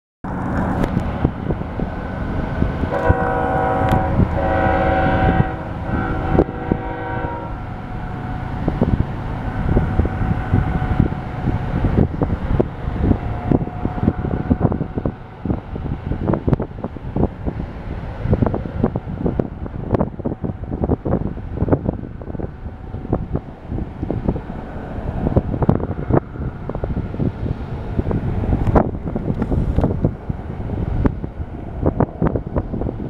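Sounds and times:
train rumbling: 0.2 - 33.0
locomotive horn chord: 2.9 - 8.6.

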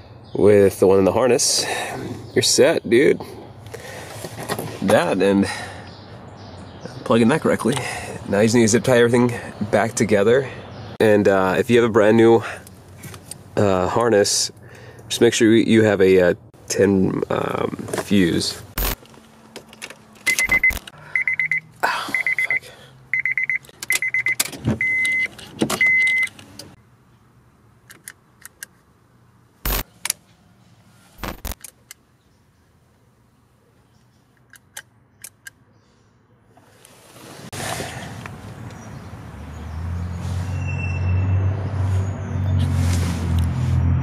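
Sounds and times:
car warning chime beeping: 20.3 - 26.4.

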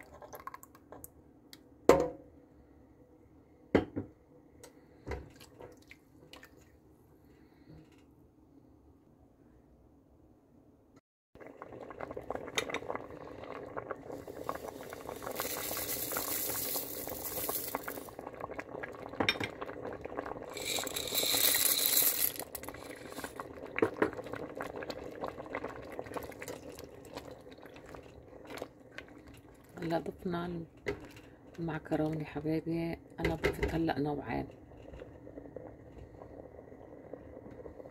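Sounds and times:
soup bubbling in a pot: 0.0 - 1.2, 11.4 - 37.9.

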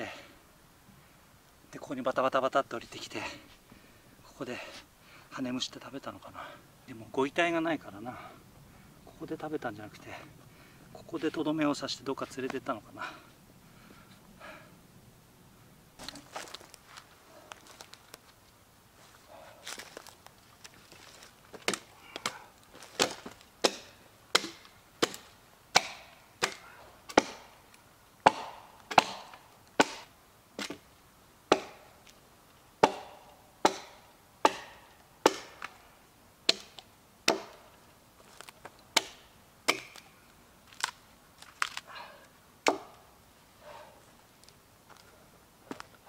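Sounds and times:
axe chopping log: 21.5 - 27.5, 28.2 - 30.8, 31.5 - 31.9, 32.8 - 35.8, 36.5 - 37.6, 38.9 - 40.1, 42.6 - 43.0.

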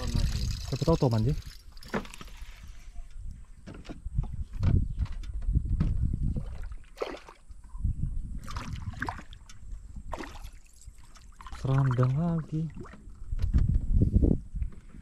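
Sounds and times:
fish splashing at water surface: 6.5 - 7.4, 10.1 - 12.1.

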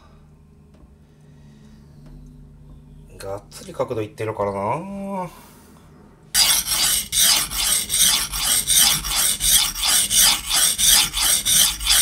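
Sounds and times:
knife scraping on whetstone: 6.4 - 12.0.

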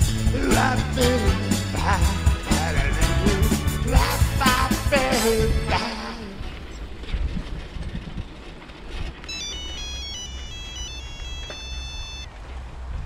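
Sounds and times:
steady low rumble: 0.1 - 10.9
mobile phone ringtone: 9.2 - 12.3.

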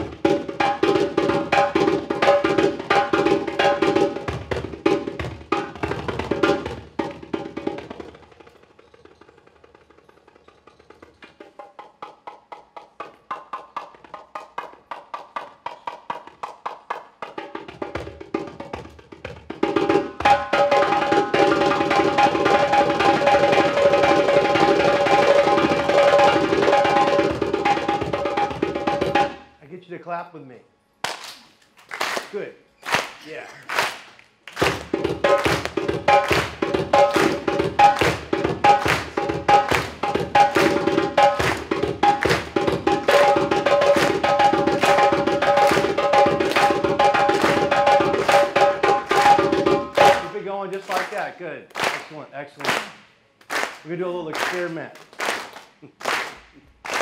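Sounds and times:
hand drum played fast: 0.0 - 8.5, 11.4 - 29.4, 34.6 - 51.2.

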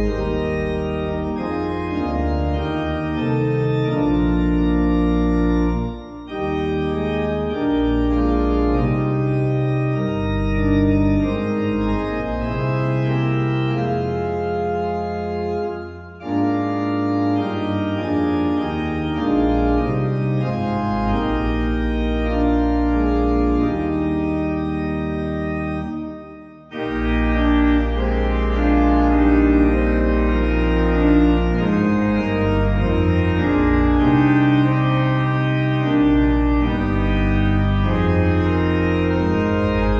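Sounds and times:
organ playing hymn chords: 0.0 - 39.9.

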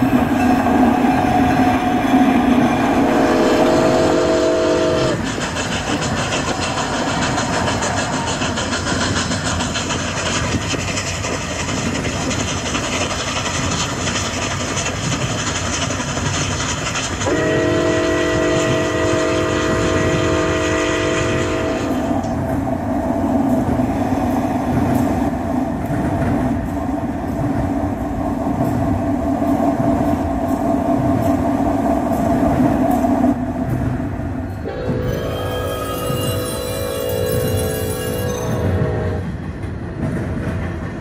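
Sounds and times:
model locomotive running: 1.4 - 22.4, 34.6 - 39.2
multi-chime horn blast: 34.7 - 39.2.

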